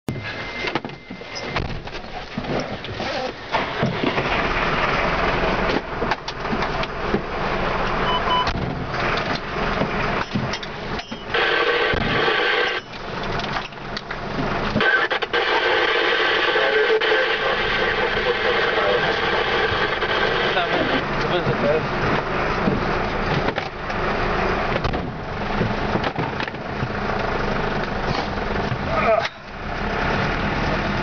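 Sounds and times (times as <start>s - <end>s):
short electronic beeps: 0.1s - 1.7s, 8.0s - 8.6s, 12.5s - 13.0s
truck engine running: 0.1s - 31.0s.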